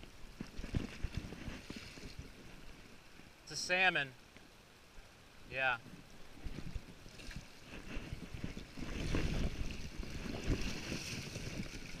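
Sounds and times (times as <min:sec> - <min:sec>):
microphone handling rumble: 0:00.0 - 0:02.8, 0:05.8 - 0:12.0
wind buffeting microphone: 0:00.0 - 0:02.8, 0:05.9 - 0:12.0
stream water splashing: 0:00.0 - 0:03.8, 0:06.2 - 0:12.0.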